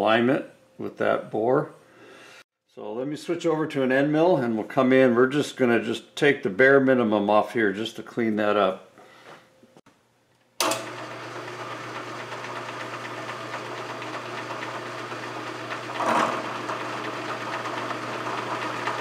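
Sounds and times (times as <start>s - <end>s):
milling machine spindle humming: 10.6s - 19.0s.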